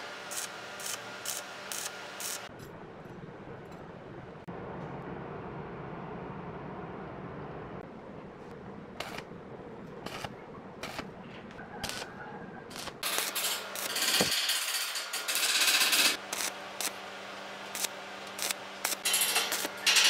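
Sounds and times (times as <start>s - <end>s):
arc welding crackling: 0.0s - 2.5s, 9.0s - 9.3s, 10.0s - 12.1s, 12.7s - 20.0s
metal tools clicking on steel drum: 19.0s - 20.0s.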